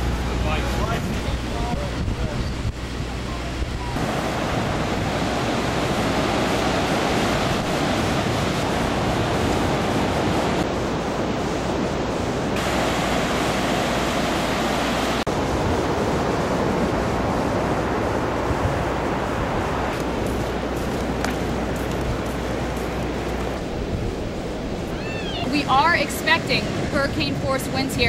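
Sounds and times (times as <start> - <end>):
wind and surf rushing: 0.0 - 28.0.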